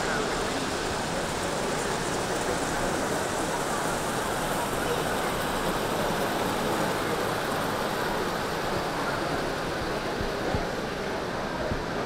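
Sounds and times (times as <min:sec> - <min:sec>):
distant chatter and movement: 0:00.0 - 0:12.0.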